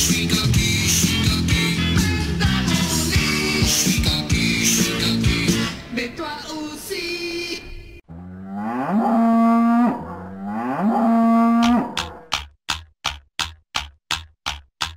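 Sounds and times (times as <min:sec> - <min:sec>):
sung song: 0:00.0 - 0:07.9
cattle mooing: 0:08.1 - 0:12.3
regular ticking: 0:11.6 - 0:14.9.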